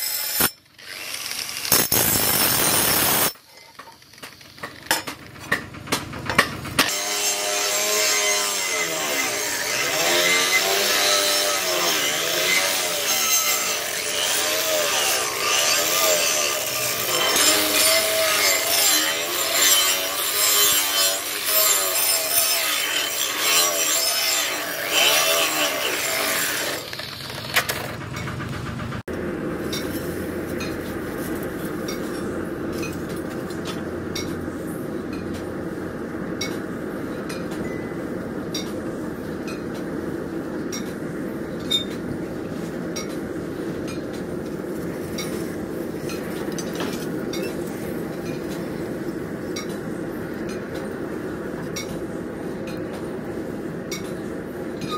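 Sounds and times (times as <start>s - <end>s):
angle grinder grinding steel: 0.0s - 3.4s, 6.8s - 27.3s.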